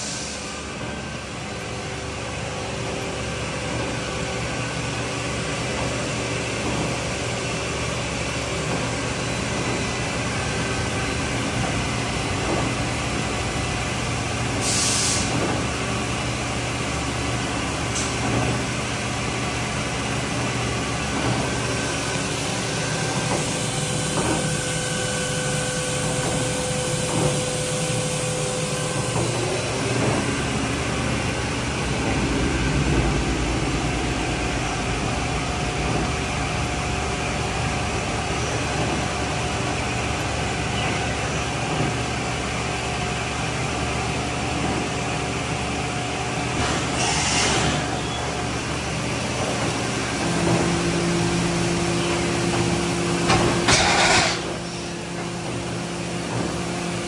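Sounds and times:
machinery humming: 0:00.0 - 0:57.0
air hissing: 0:14.5 - 0:15.5.

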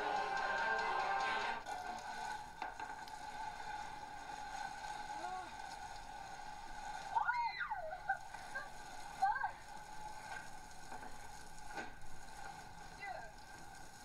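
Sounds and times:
running water from shower: 0:00.0 - 0:14.0
high voice crying out: 0:07.2 - 0:08.2.

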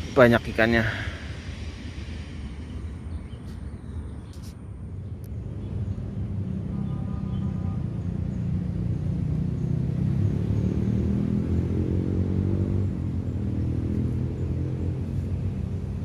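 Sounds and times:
vehicle engine rumbling: 0:00.0 - 0:16.0.

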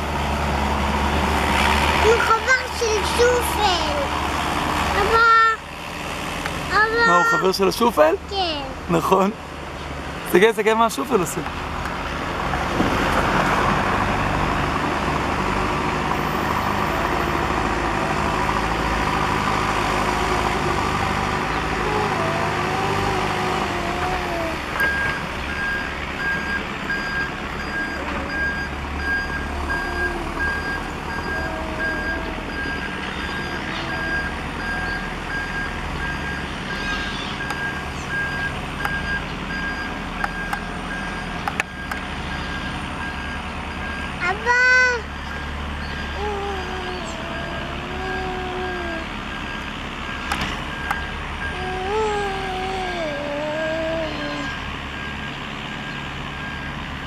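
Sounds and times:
diesel engine working: 0:00.0 - 0:57.0
reversing alarm beeping: 0:24.8 - 0:44.2, 0:49.3 - 0:51.6, 0:54.4 - 0:56.8.

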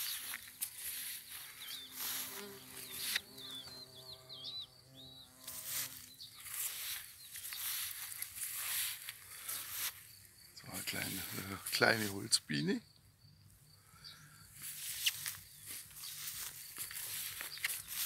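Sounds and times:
bee buzzing: 0:00.0 - 0:08.8
small bird chirping: 0:00.0 - 0:09.9, 0:12.5 - 0:18.0.

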